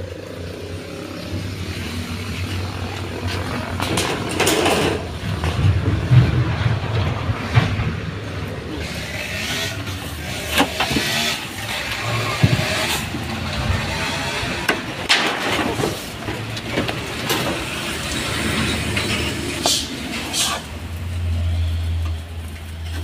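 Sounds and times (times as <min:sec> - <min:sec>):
knocks and rustling: 0:03.2 - 0:08.5, 0:10.5 - 0:14.0, 0:14.6 - 0:20.5.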